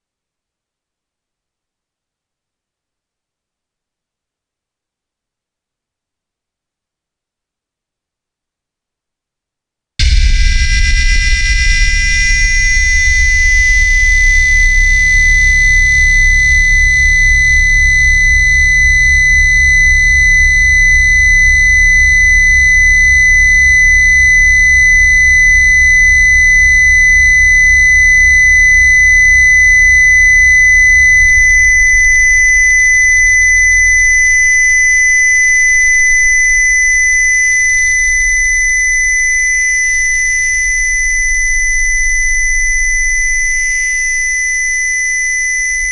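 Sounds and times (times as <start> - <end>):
deep pulsing low hum: 10.0 - 45.9
piercing high test tone: 10.0 - 45.9.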